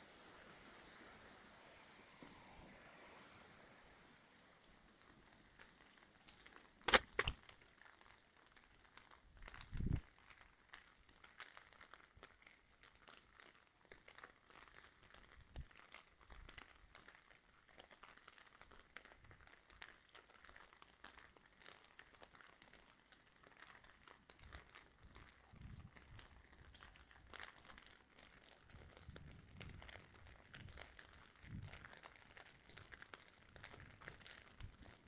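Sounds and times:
faint crackles and scuffs: 0:00.0 - 0:35.0.

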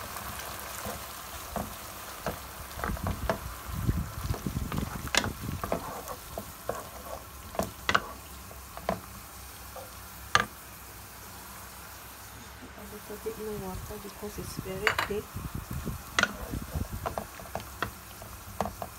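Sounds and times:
sauce sizzling in a frying pan: 0:00.0 - 0:18.9
spatula knocking and scraping pan: 0:00.7 - 0:03.5, 0:04.2 - 0:09.1, 0:09.7 - 0:10.6, 0:14.8 - 0:15.2, 0:16.1 - 0:18.9.

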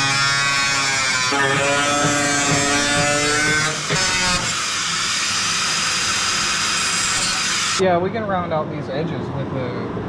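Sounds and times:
angle grinder cutting metal: 0:00.0 - 0:07.8.

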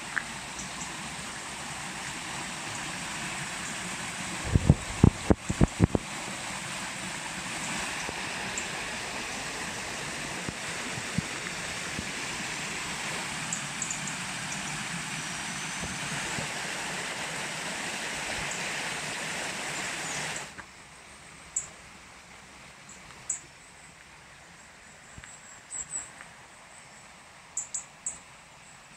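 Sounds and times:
river rushing over rocks: 0:00.0 - 0:20.6.

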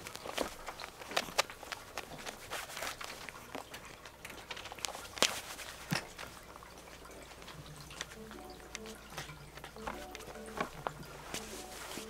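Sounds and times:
cat claws scratching cloth: 0:00.0 - 0:06.5.

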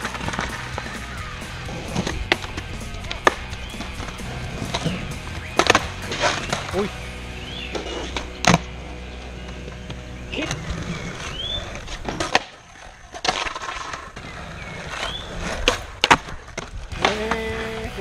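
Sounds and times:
skateboard slapping down: 0:00.0 - 0:06.9, 0:09.5 - 0:17.8
skateboard tail cracking: 0:00.0 - 0:06.9, 0:07.5 - 0:17.8
skateboard wheels rolling on concrete: 0:00.0 - 0:18.0.

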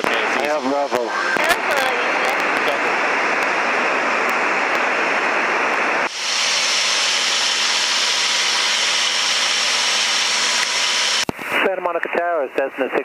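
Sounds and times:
airplane cabin engine noise: 0:00.0 - 0:13.0.

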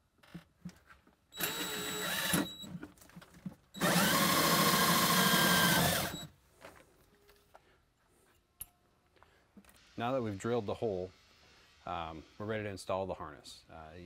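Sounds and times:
cordless drill whining through metal: 0:01.4 - 0:02.8, 0:03.8 - 0:06.4.

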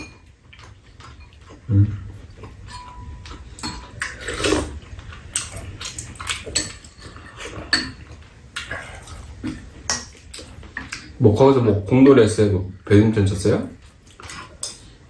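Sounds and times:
spoons clinking on ceramic bowls: 0:00.0 - 0:00.3, 0:02.6 - 0:04.1
chewing: 0:00.4 - 0:11.2, 0:13.8 - 0:15.0.

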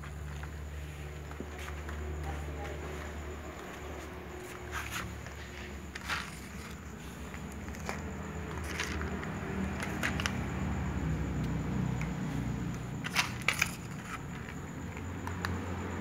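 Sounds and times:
cats crunching dry food: 0:04.4 - 0:10.7.

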